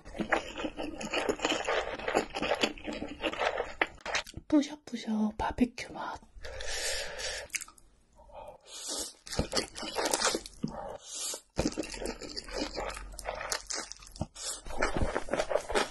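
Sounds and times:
crunching and chewing: 0.0 - 4.4, 9.2 - 10.7, 11.6 - 15.9.

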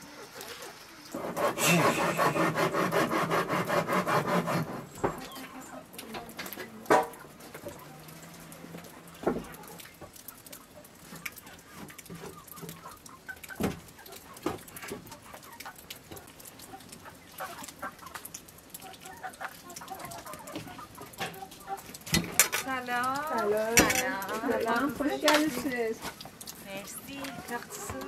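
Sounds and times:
chickens clucking: 0.0 - 28.0
people's voices: 1.6 - 2.5, 22.6 - 26.0, 26.6 - 28.0.

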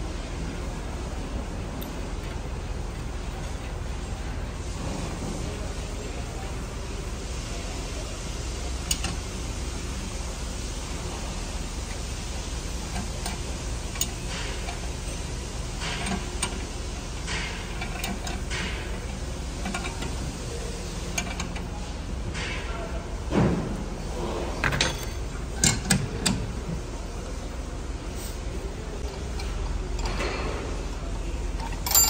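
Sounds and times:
low workshop hum: 0.0 - 32.0
metal clicks and scraping: 8.8 - 9.3, 12.8 - 22.6, 24.6 - 26.6, 29.0 - 30.8, 31.6 - 32.0.

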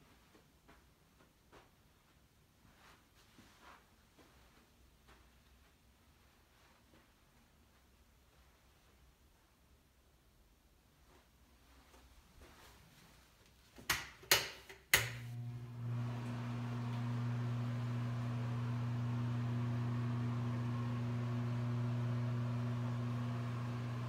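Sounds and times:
wall switch clicks: 13.8 - 15.3
exhaust fan humming: 15.0 - 24.0.

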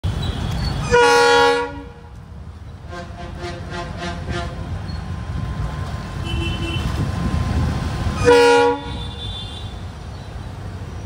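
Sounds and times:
locomotive engine and wheel rumble: 0.0 - 11.0
locomotive horn blast: 0.8 - 2.2, 2.9 - 4.7, 6.2 - 7.1, 8.2 - 9.8.

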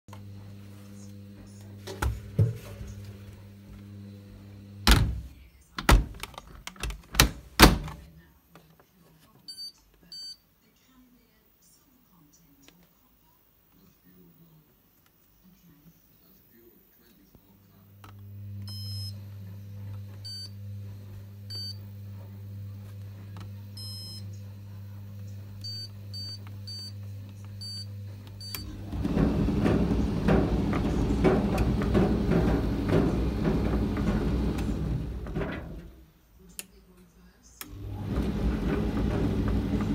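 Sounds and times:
tumble dryer humming: 0.1 - 6.2, 17.7 - 36.2, 37.6 - 39.9
dryer door thumping shut: 4.8 - 6.2, 7.2 - 8.0, 28.6 - 36.0
knocks: 28.7 - 35.9.

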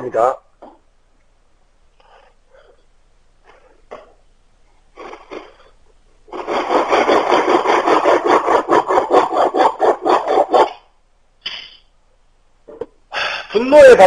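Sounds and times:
hand tool scraping wood: 5.0 - 10.8.

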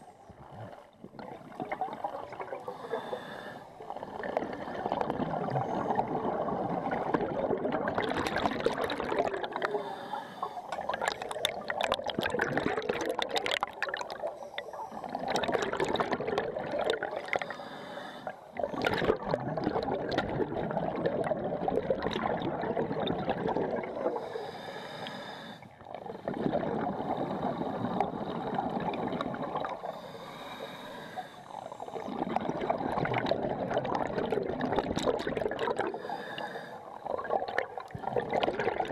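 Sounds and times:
scuba exhaust bubbles: 0.0 - 38.9
scuba regulator inhalations: 2.5 - 6.1, 9.4 - 13.3, 17.0 - 18.8, 23.9 - 32.3, 35.7 - 37.2.

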